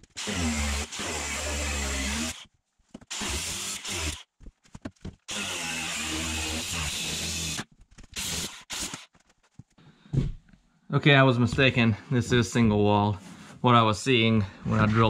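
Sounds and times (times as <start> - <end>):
angle grinder cutting metal: 0.0 - 2.4, 3.1 - 4.3, 5.3 - 7.6, 8.2 - 9.1.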